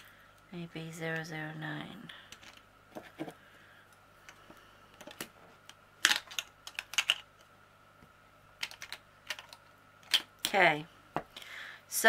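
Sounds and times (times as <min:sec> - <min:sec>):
plastic containers clicking and tapping: 0:06.0 - 0:07.5, 0:08.6 - 0:10.6.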